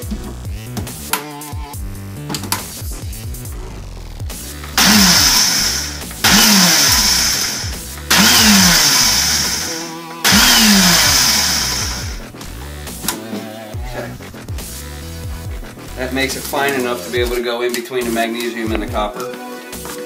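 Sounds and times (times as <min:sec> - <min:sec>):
blender grinding bursts: 0:04.8 - 0:12.2.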